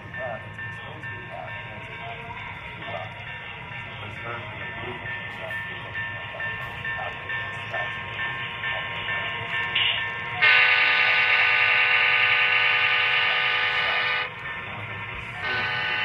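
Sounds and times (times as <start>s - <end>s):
diesel locomotive engine running: 0.0s - 16.0s
locomotive horn: 9.8s - 14.4s, 15.4s - 16.0s.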